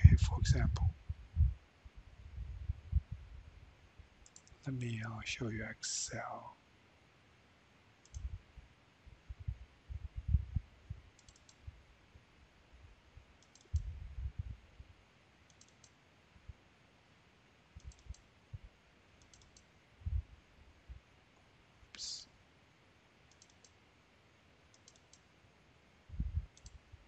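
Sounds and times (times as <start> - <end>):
dull low thumps: 0.0 - 3.6, 9.2 - 11.1, 13.7 - 14.6, 20.0 - 21.0, 26.1 - 26.5
computer mouse double-clicks: 4.2 - 4.6, 8.0 - 8.3, 11.2 - 11.6, 13.4 - 13.9, 15.5 - 16.0, 17.8 - 18.3, 19.2 - 19.7, 23.3 - 23.8, 24.7 - 25.3, 26.5 - 26.8.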